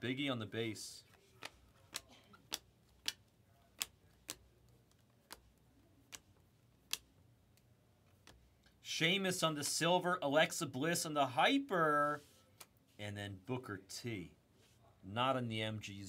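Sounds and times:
cards flicking clicks: 1.3 - 8.4.

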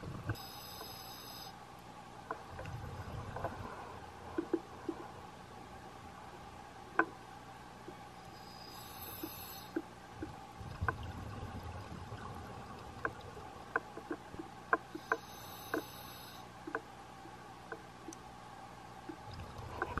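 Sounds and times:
faint hum: 0.0 - 20.0
bubbly rumbles of exhaled air: 2.5 - 4.0, 10.2 - 13.7.

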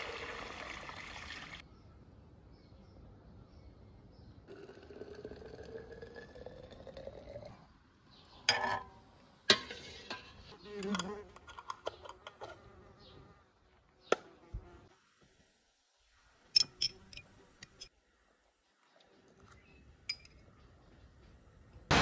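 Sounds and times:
liquid poured into a glass bottle: 4.5 - 7.6.

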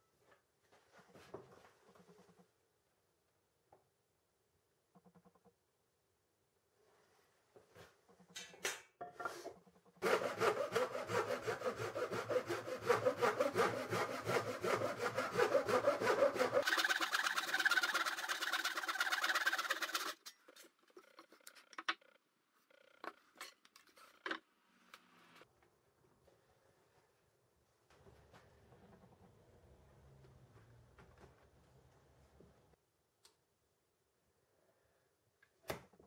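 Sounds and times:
hand saw cutting wood: 10.0 - 20.4.

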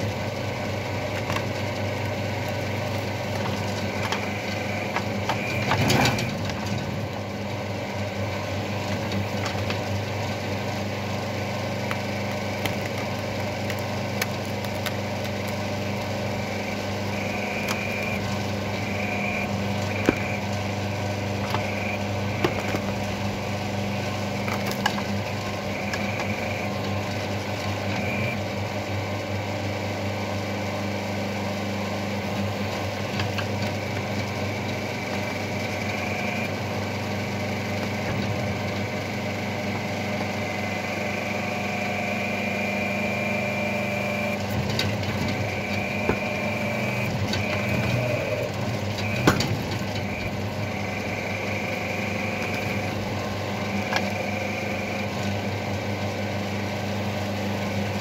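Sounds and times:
hydraulic pump humming: 0.0 - 58.0
wood crunching: 0.8 - 7.2, 11.6 - 28.3, 44.4 - 51.1
roots snapping: 11.8 - 16.3.

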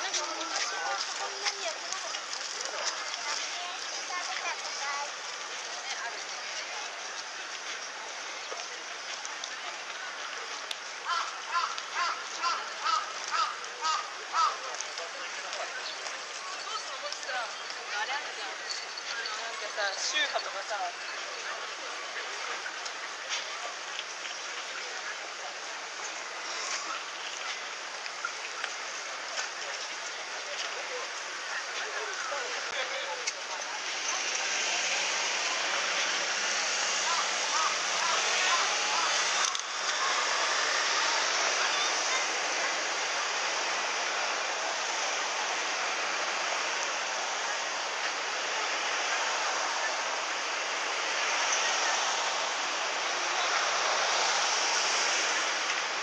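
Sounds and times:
footsteps of people walking: 0.0 - 14.0, 26.4 - 34.6
cars going by: 0.0 - 56.0
faint scattered voices: 0.0 - 56.0
hiss-like outdoor ambience: 0.0 - 56.0.

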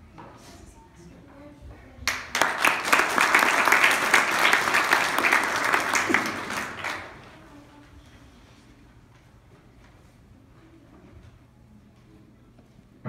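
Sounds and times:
person clapping close by: 2.1 - 7.1
audience applauding: 2.1 - 7.3.

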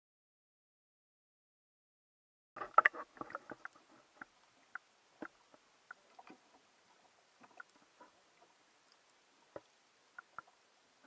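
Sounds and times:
faint underwater hiss: 2.6 - 11.0
small underwater clicks and pops: 2.6 - 11.0.

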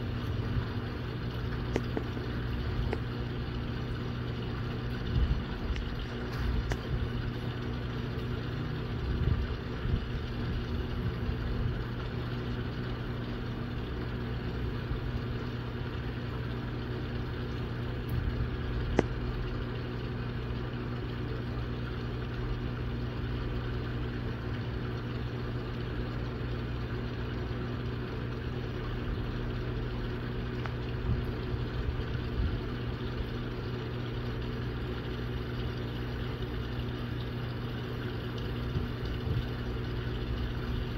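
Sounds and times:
motor humming: 0.0 - 40.9
sharp tick: 1.6 - 2.1.

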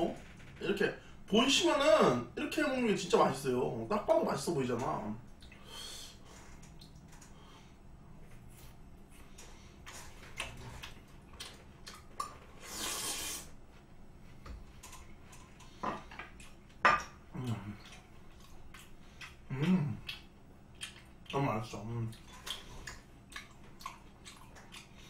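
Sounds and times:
chewing with wet mouth sounds: 8.5 - 12.5, 14.8 - 25.0.

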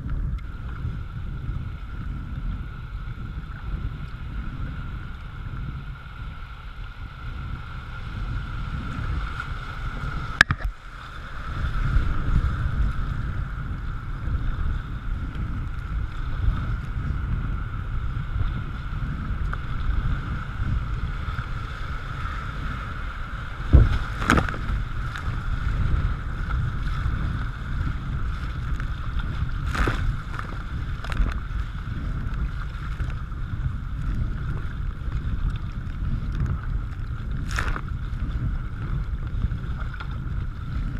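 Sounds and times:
kayak paddle strokes: 0.0 - 40.9
wind rumbling on microphone: 0.0 - 40.9
rushing river water: 15.7 - 35.8.

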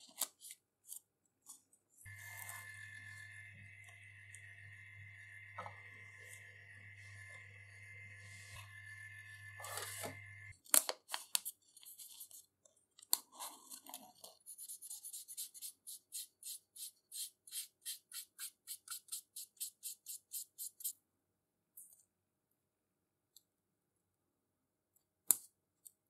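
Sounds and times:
laminator motor hum: 2.1 - 10.5
marker scratching on metal: 14.5 - 20.9.

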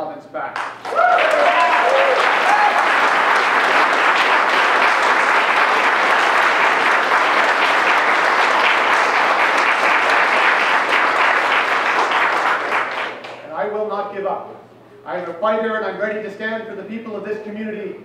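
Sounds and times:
audience applauding: 0.6 - 13.4.

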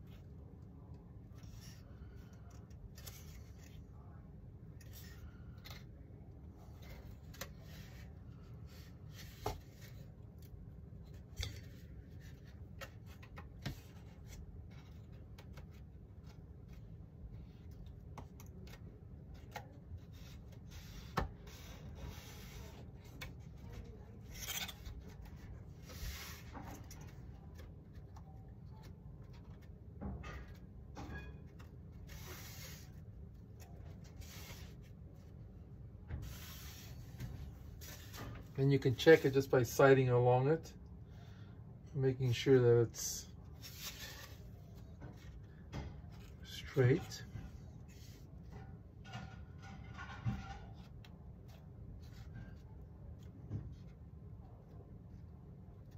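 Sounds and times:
rubbing and scraping: 30.3 - 35.3.

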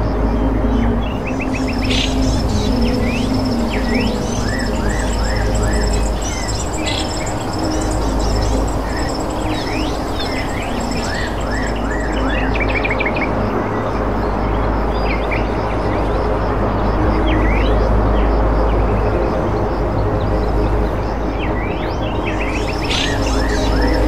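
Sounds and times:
steady low rumble: 0.0 - 24.0
small birds chirping: 0.8 - 13.2, 20.3 - 24.0.

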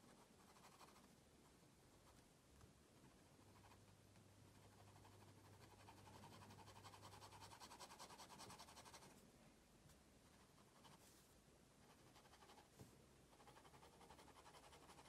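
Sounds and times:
pen scratching on paper: 0.0 - 1.0, 4.5 - 9.1, 11.8 - 12.7, 13.3 - 15.0.

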